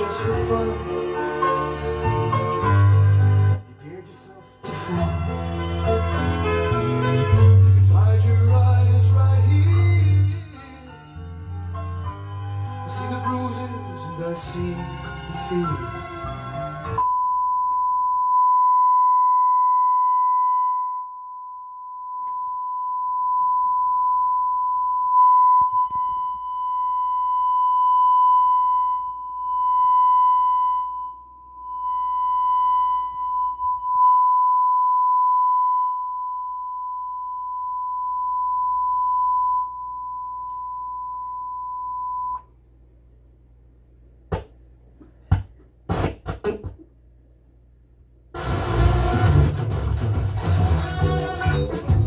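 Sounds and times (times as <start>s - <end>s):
pure test tone: 17.0s - 42.5s.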